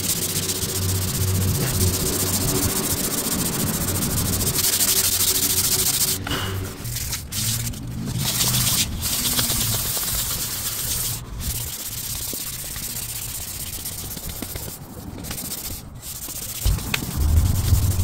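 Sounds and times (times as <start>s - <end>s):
sandpaper rubbing on wood: 0.0s - 18.0s
low rumble: 0.6s - 10.1s, 16.6s - 18.0s.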